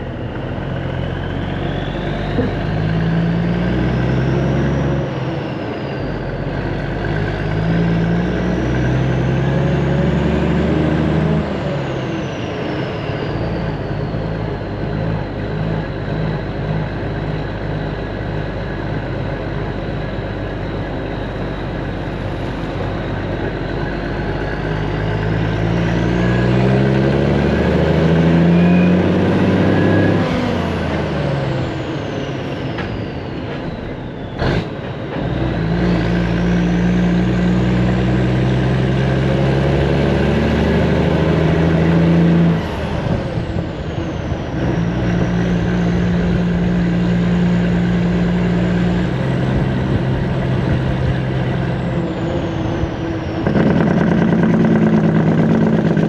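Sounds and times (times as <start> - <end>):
diesel truck engine: 0.0 - 56.0.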